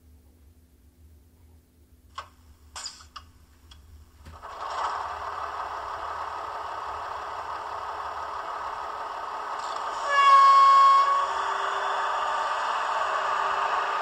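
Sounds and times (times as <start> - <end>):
diesel engine running: 4.3 - 14.0
train horn blast: 9.8 - 14.0.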